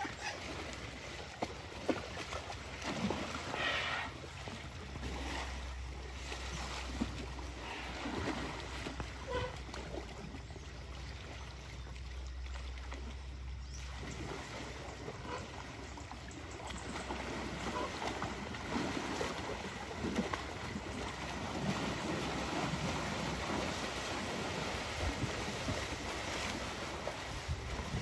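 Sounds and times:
muddy water sloshing and splashing: 0:00.0 - 0:28.0.

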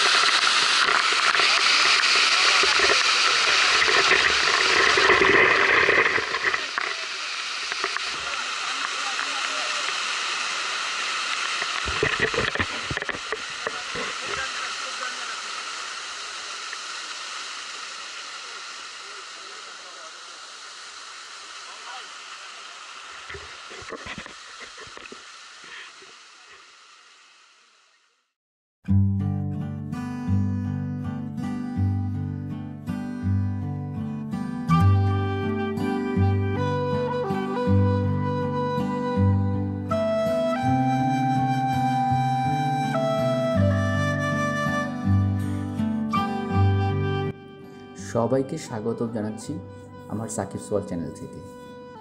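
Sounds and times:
waterfall rushing over rock: 0:00.0 - 0:28.0.

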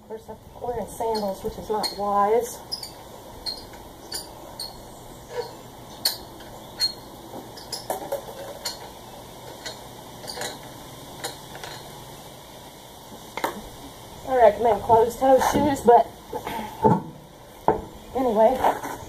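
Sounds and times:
lug nuts clinking: 0:00.8 - 0:12.0.

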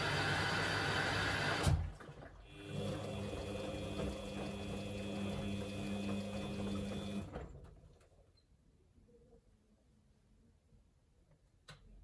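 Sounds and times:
washing machine drum and motor: 0:00.0 - 0:08.0
click: 0:11.3 - 0:12.0.

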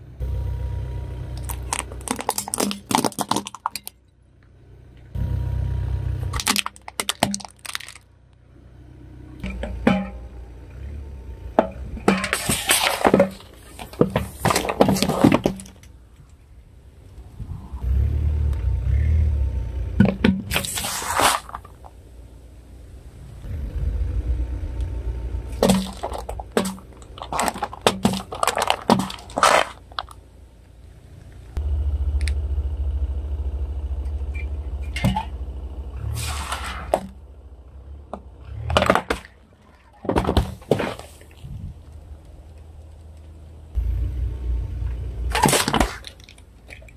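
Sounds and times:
slowly moving car rumble: 0:00.0 - 0:46.9
cans crunching and bursting: 0:01.4 - 0:04.0, 0:06.4 - 0:08.1, 0:25.6 - 0:30.2.

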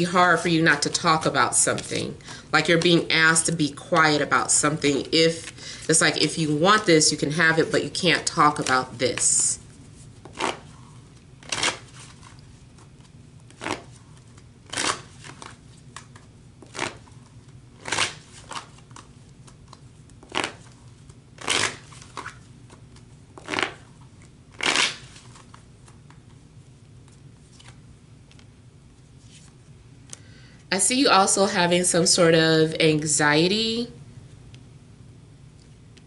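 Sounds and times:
cards being shuffled: 0:08.2 - 0:26.4, 0:27.0 - 0:28.5, 0:29.1 - 0:29.7.

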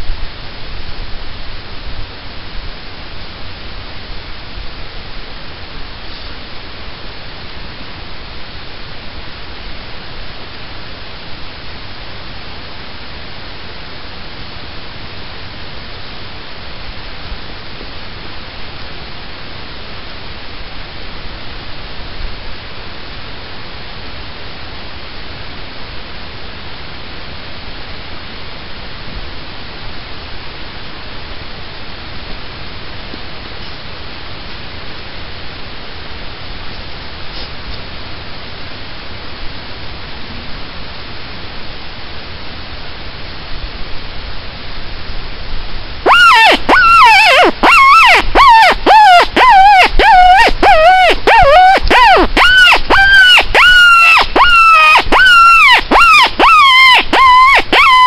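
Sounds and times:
wind noise on microphone: 0:00.0 - 0:24.5, 0:41.6 - 0:58.0.

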